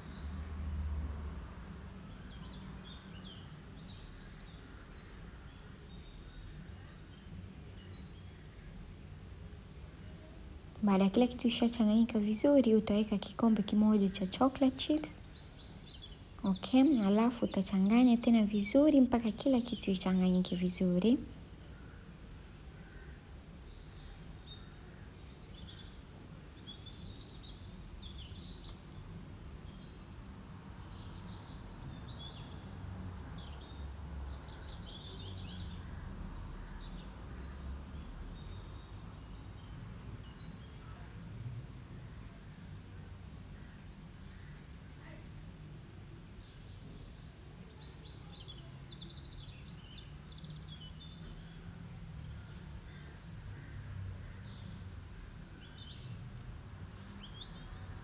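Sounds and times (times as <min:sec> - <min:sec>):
low steady hum: 0:06.6 - 0:23.7
birds chirping: 0:09.4 - 0:22.2.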